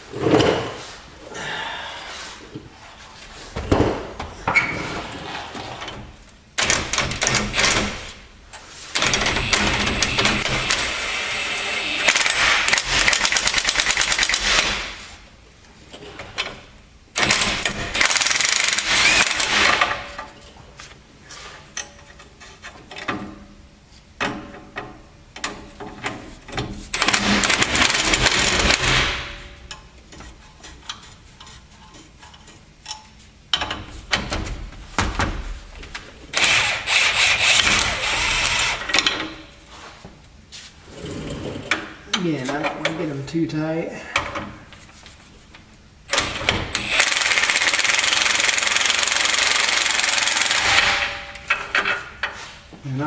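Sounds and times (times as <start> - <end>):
impact wrench running nuts: 6.6 - 8.1, 9.0 - 15.0, 17.2 - 20.0, 26.9 - 29.4, 36.3 - 39.2, 46.1 - 51.9.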